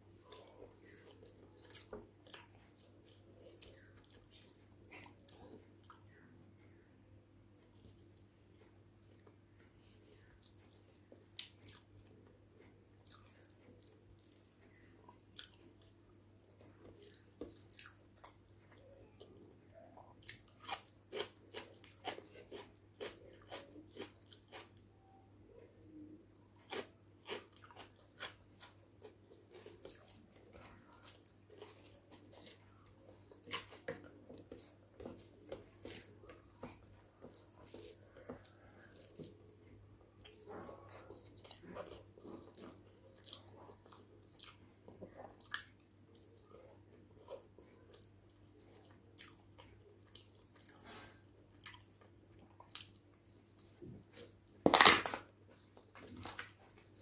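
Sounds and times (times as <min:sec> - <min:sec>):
chewing and biting food: 0:10.4 - 0:19.3, 0:20.2 - 0:25.1, 0:26.4 - 0:57.0.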